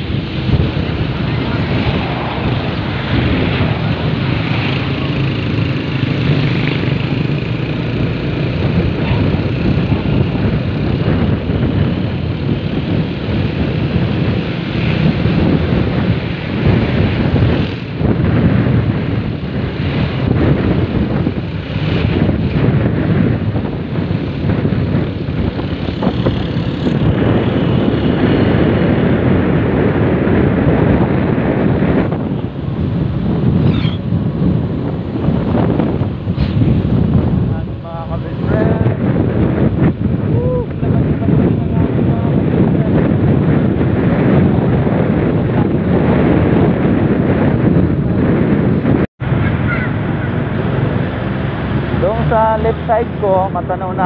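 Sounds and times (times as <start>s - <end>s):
motorcycle engine humming: 0.0s - 54.0s
wind rushing over microphone: 0.0s - 54.0s.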